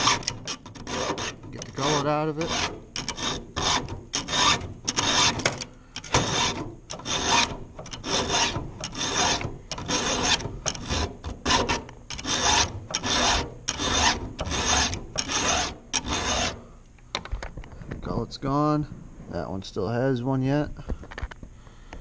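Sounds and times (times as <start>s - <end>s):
file rasping on saw chain: 0.0s - 16.6s.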